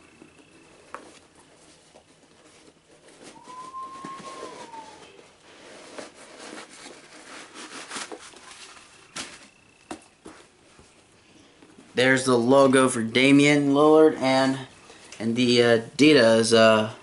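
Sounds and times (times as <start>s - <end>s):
packaging rustling: 0.2s - 10.1s
thin rising tone: 3.3s - 5.3s.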